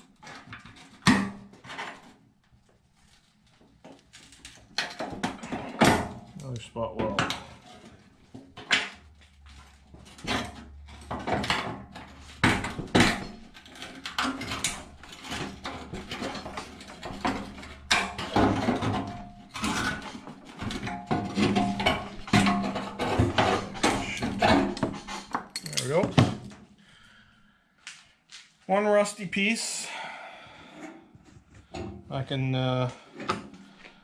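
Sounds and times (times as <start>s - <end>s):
hand tools on sheet steel: 10.1s - 26.0s.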